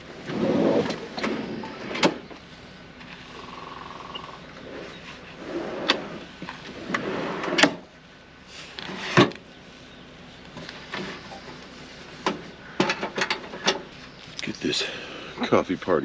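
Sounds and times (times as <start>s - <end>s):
knocks and clatters: 12.2s - 13.9s.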